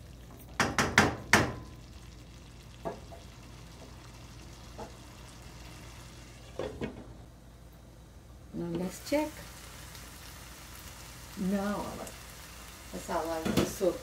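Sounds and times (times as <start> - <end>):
faint sizzle of simmering food: 0.0 - 14.0
wooden spoon knocking on pan: 0.6 - 1.8, 2.8 - 3.9, 13.4 - 13.8.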